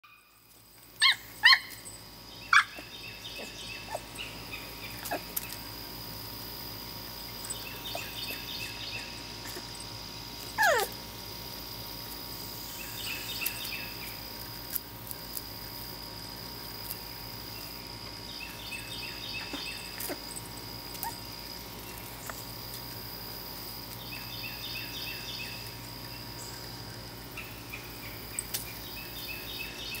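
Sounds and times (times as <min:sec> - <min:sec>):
puppy barking: 0:01.0 - 0:01.8, 0:02.5 - 0:02.8, 0:10.6 - 0:11.0
puppy yelp: 0:01.0 - 0:01.8, 0:02.5 - 0:02.8, 0:05.0 - 0:05.4, 0:10.5 - 0:11.0
bird calling: 0:01.0 - 0:05.6, 0:07.4 - 0:09.6.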